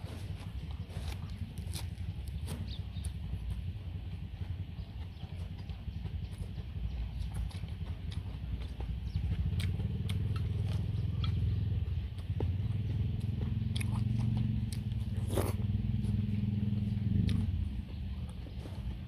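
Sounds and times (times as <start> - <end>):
engine droning: 0.0 - 19.0
wet mouth sounds of eating: 6.1 - 19.0.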